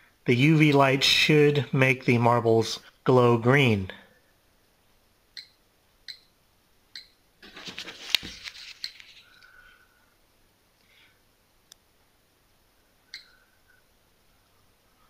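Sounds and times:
plastic bag crinkling: 0:07.4 - 0:09.4.

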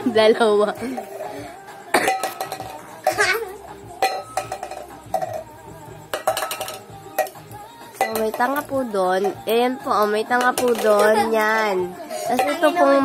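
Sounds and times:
sharp metallic clinks: 0:02.1 - 0:09.5.

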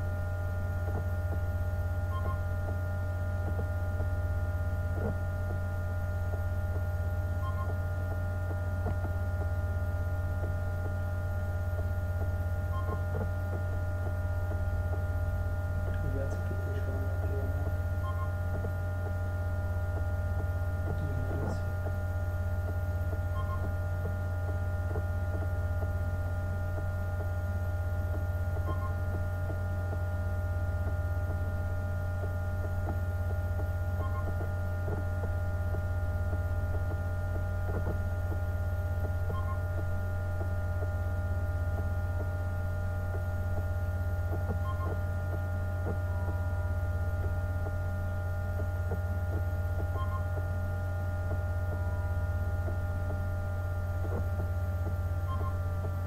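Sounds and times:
electrical hum: 0:00.0 - 0:56.0.

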